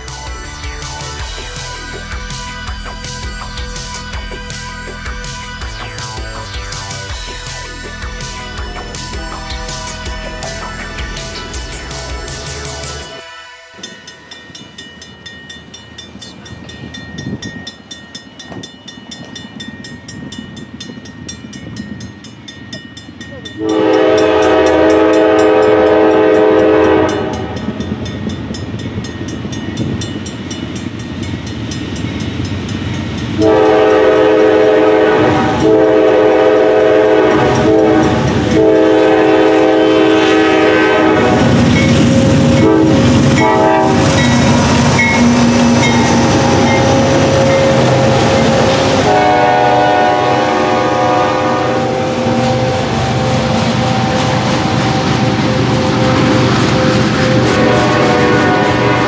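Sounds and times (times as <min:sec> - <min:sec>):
train engine and wheels rumbling: 0:00.0 - 0:59.0
locomotive air horn blasts: 0:23.6 - 0:27.7, 0:33.4 - 0:59.0.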